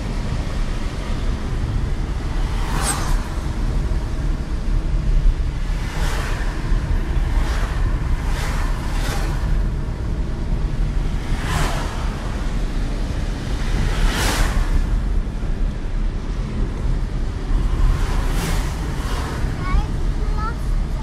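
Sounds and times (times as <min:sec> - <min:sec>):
car road and wind rumble: 0:00.0 - 0:21.0
passing cars whooshing: 0:00.0 - 0:21.0.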